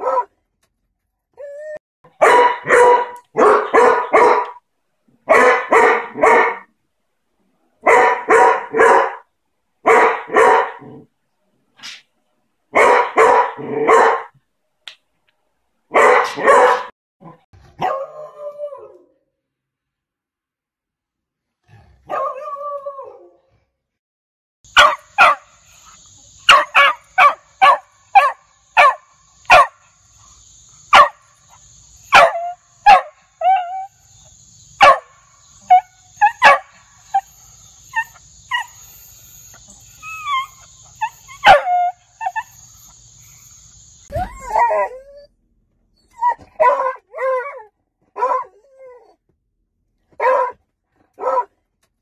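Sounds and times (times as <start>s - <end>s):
dog barking: 0.0s - 0.3s, 2.2s - 4.6s, 5.3s - 6.7s, 7.8s - 11.0s, 12.7s - 14.4s, 15.9s - 16.9s, 17.8s - 18.2s, 22.1s - 22.6s, 24.8s - 25.5s, 26.5s - 29.8s, 30.9s - 31.2s, 32.1s - 33.9s, 34.8s - 37.3s, 41.4s - 42.0s, 46.6s - 47.6s, 48.2s - 48.5s, 50.2s - 50.6s, 51.2s - 51.5s.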